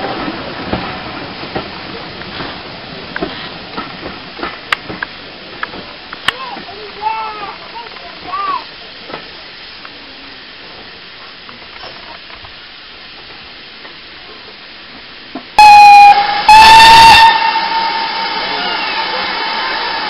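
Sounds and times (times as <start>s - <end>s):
steam hissing: 0.0s - 20.0s
steam locomotive whistle blasts: 15.6s - 20.0s.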